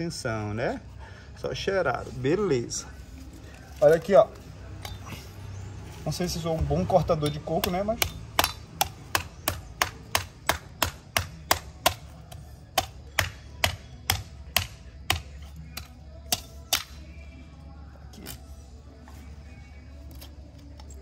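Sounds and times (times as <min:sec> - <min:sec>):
knife chopping coconut: 0:07.1 - 0:16.9.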